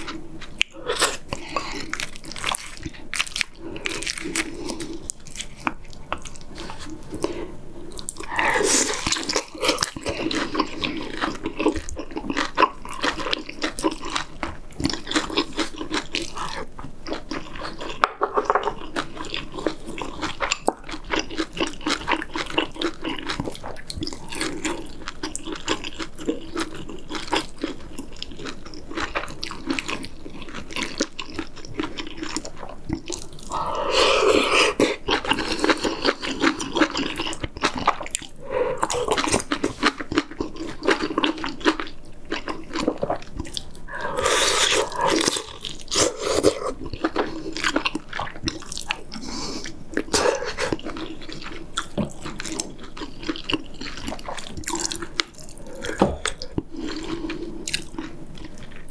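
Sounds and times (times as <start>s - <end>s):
wet chewing and mouth smacks: 34.3s - 58.9s.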